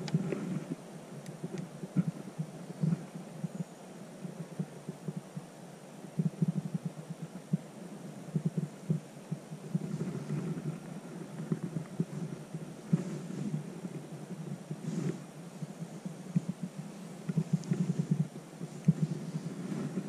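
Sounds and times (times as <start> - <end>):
faint ticks: 0.0 - 5.5, 6.1 - 7.7, 8.3 - 20.0
wind buffeting microphone: 6.1 - 20.0.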